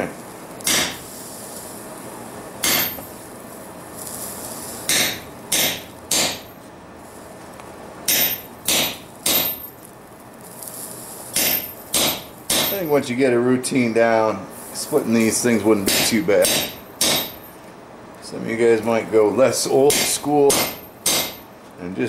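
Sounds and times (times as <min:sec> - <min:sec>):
hammer striking chisel on metal: 0:00.6 - 0:01.0, 0:02.6 - 0:03.0, 0:04.9 - 0:06.5, 0:08.1 - 0:09.6, 0:11.4 - 0:12.9, 0:15.9 - 0:17.4, 0:19.8 - 0:21.5.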